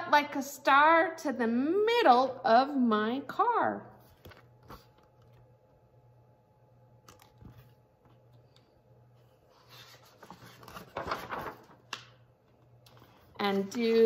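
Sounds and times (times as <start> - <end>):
low room hum: 0.0 - 14.0
book pages rustling: 4.0 - 5.5, 9.2 - 14.0.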